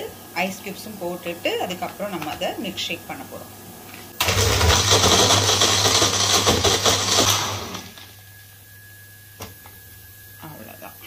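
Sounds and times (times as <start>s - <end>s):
blender motor running: 4.2s - 8.2s.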